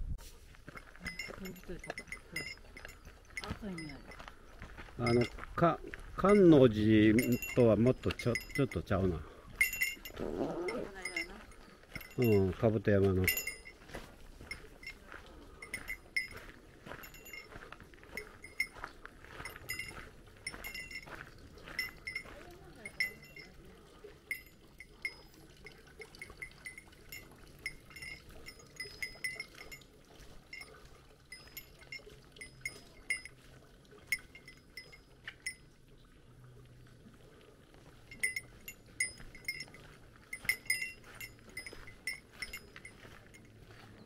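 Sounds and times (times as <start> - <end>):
small metal bell jingling: 0.7 - 35.7, 38.0 - 44.0.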